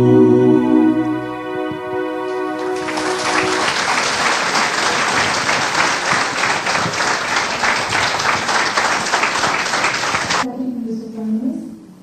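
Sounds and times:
held organ chord: 0.0 - 10.4
audience applauding: 2.6 - 10.4.

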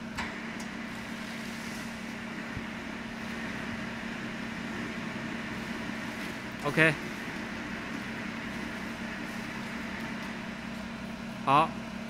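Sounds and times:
electric motor humming: 1.8 - 11.4.

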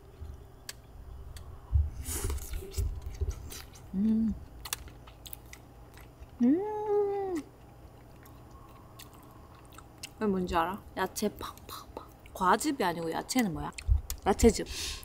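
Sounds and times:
woman chewing food: 0.1 - 10.3, 11.4 - 14.2
woman humming: 3.8 - 4.5, 6.4 - 7.5.

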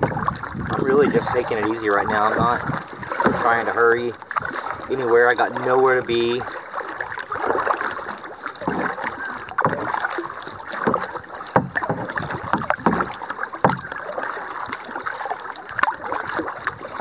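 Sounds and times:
paddle strokes splashing in water: 0.0 - 17.0
sharp knocks: 10.8 - 13.9.

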